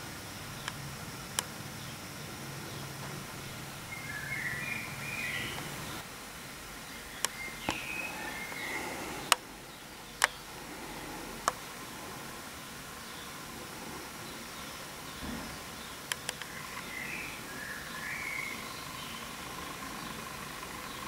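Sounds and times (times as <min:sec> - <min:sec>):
steady background hiss: 0:00.0 - 0:21.0
small bird singing warbling phrases: 0:02.6 - 0:06.0, 0:06.8 - 0:10.5, 0:14.3 - 0:21.0
sharp clicks: 0:10.2 - 0:10.4, 0:11.4 - 0:11.7, 0:16.0 - 0:16.9.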